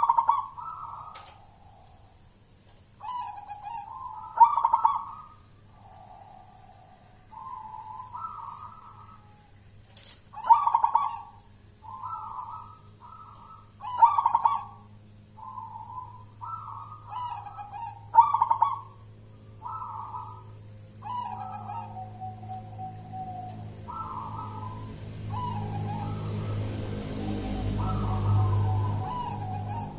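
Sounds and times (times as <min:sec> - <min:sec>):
dove cooing: 0:00.0 - 0:02.2, 0:03.0 - 0:29.9.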